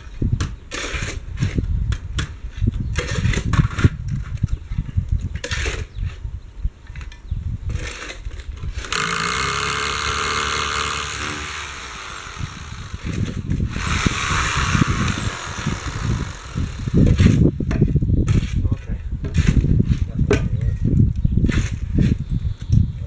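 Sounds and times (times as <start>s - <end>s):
angle grinder whine: 8.9s - 17.1s.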